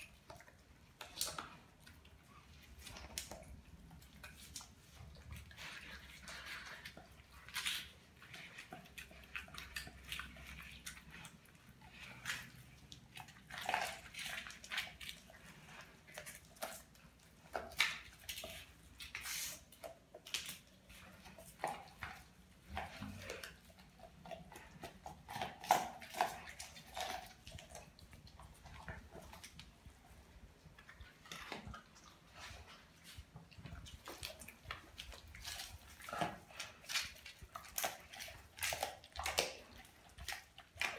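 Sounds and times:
dog chewing and slurping: 0:00.0 - 0:40.9.

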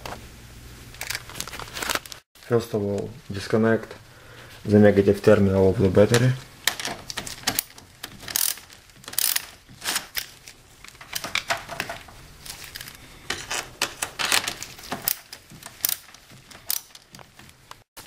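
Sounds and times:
ratchet wrench clicking: 0:07.4 - 0:08.6, 0:09.2 - 0:09.5.

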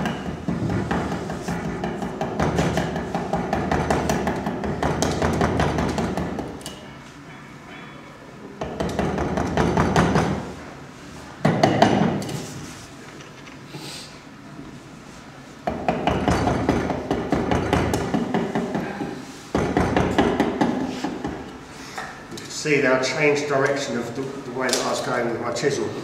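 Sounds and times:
wood chisel tapping: 0:00.0 - 0:06.7, 0:08.6 - 0:10.4, 0:15.6 - 0:21.5.

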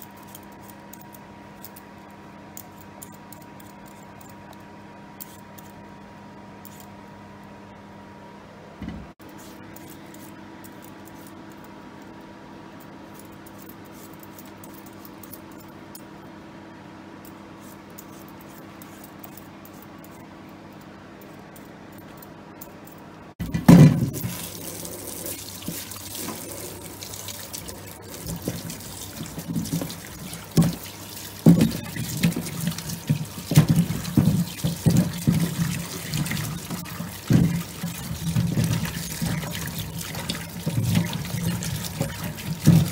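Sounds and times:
low steady hum: 0:00.0 - 0:42.9
tap running into steel sink: 0:28.1 - 0:42.9.

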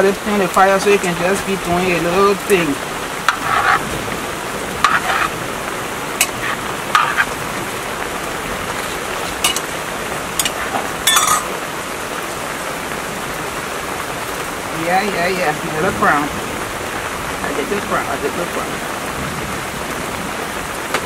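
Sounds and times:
steady rain falling: 0:00.0 - 0:21.0
metal pot and utensil clinking: 0:06.2 - 0:07.3, 0:09.4 - 0:09.7, 0:10.4 - 0:11.6.

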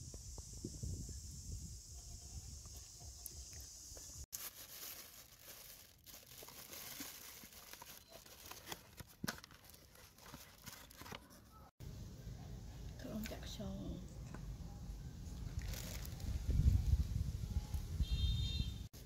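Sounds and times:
plastic bags crinkling: 0:04.3 - 0:11.4, 0:15.6 - 0:16.3.

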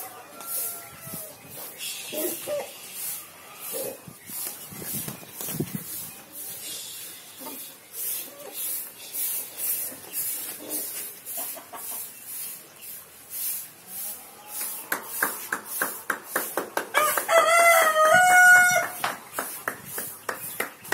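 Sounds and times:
rooster crowing: 0:00.0 - 0:01.3, 0:16.9 - 0:19.0
flip-flop footsteps on sandy path: 0:04.2 - 0:06.2, 0:14.6 - 0:20.9.

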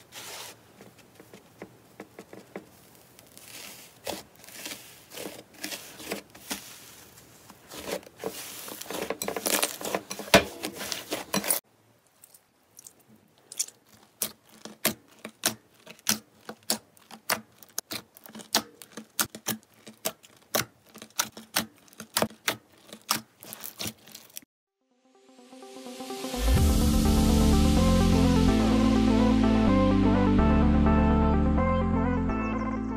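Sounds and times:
hands squishing foamy slime: 0:02.8 - 0:10.2, 0:13.5 - 0:24.4
fingers poking jelly slime: 0:13.5 - 0:24.4.

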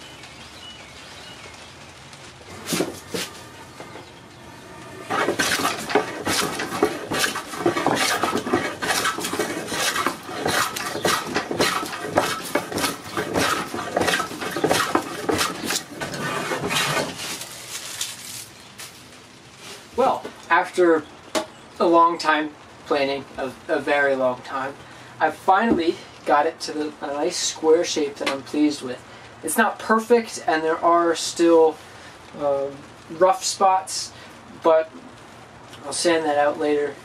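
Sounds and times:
hand plane cutting wood: 0:02.5 - 0:17.4.

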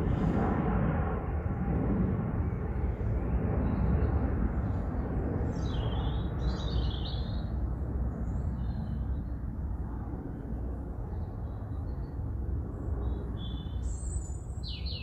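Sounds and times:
distant propeller aircraft droning: 0:00.0 - 0:15.0
bird chirping: 0:05.6 - 0:07.4, 0:13.4 - 0:15.0.

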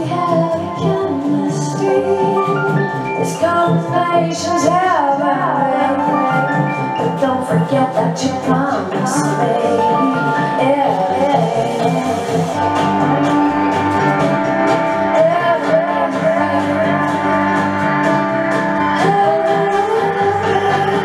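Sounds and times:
song with vocals guitar and beat: 0:00.0 - 0:21.0.

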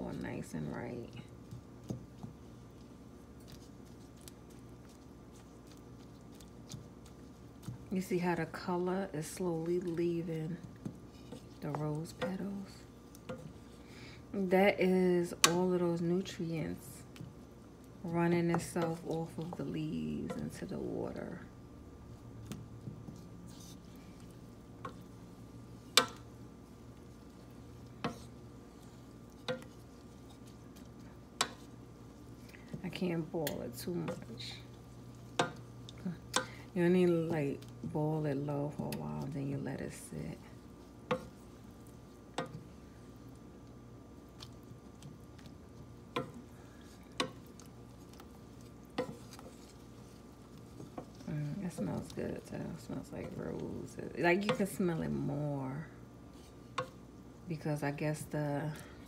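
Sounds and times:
faint steady hum: 0:00.0 - 0:59.0
spoon stirring water in a saucepan: 0:01.3 - 0:13.8, 0:22.2 - 0:54.9, 0:56.2 - 0:57.4
wooden spoon knocking on pot: 0:35.3 - 0:35.7.

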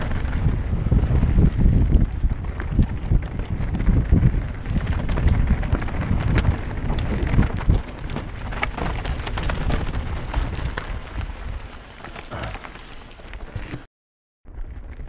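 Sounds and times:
wind buffeting microphone: 0:00.0 - 0:11.9
bike tyres rattling over stones: 0:00.0 - 0:13.9, 0:14.5 - 0:15.0.

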